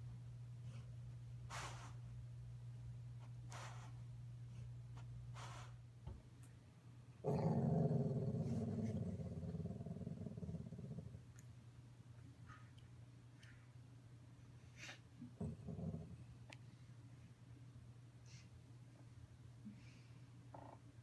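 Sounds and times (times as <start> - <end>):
faint breathy puffs: 0.6 - 2.2, 3.3 - 5.8
dog growling in sleep: 7.2 - 11.3, 15.4 - 16.2.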